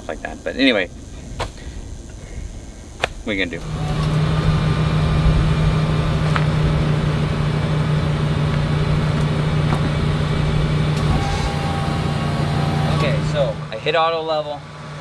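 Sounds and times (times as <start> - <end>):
pump motor humming: 3.6 - 13.8.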